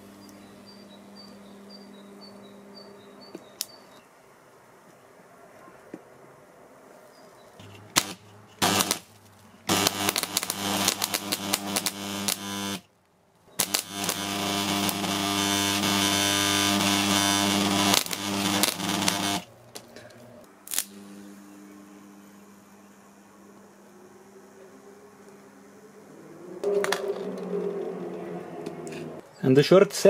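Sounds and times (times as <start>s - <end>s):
electrode sparks crackling: 7.6s - 12.9s, 13.6s - 19.8s, 20.6s - 21.1s
transformer humming loudly: 7.6s - 12.9s, 13.6s - 19.9s.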